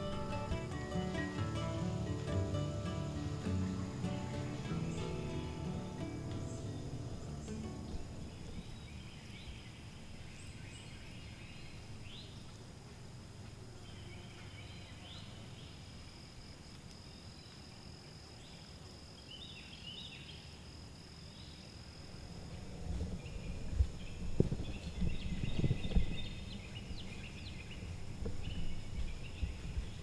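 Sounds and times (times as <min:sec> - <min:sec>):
low background rumble: 0:00.0 - 0:12.2, 0:22.1 - 0:30.0
insect drone: 0:00.0 - 0:30.0.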